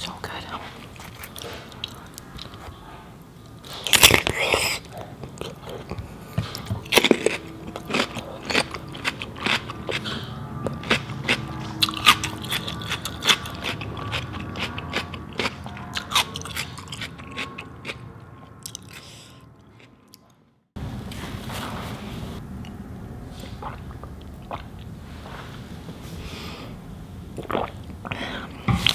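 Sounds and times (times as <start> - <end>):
chewing crisp cucumber: 0.8 - 2.8, 3.6 - 20.3, 23.4 - 24.9.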